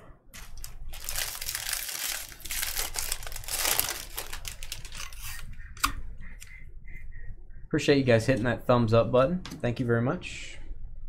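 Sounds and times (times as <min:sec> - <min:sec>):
foil wrapper crinkling: 0:00.4 - 0:05.4.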